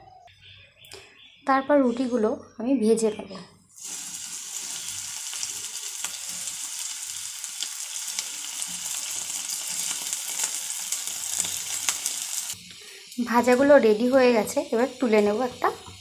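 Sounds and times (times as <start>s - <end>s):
bread sizzling in hot oil: 3.8s - 16.0s.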